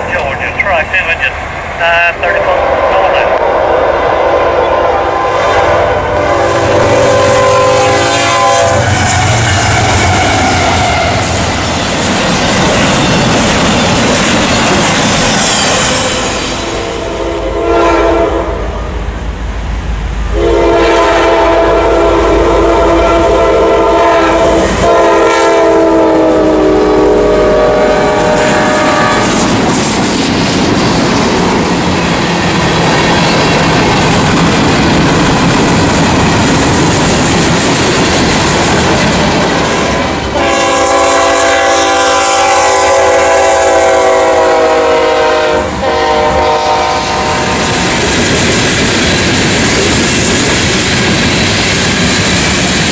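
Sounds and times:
locomotive air horn: 2.0s - 11.4s, 16.0s - 18.9s, 20.3s - 29.5s, 39.9s - 47.6s.

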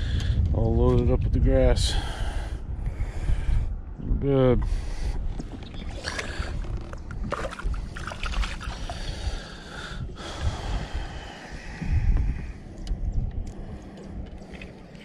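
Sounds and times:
low rumble: 0.0s - 15.0s
water splashing against boat: 5.4s - 10.9s.

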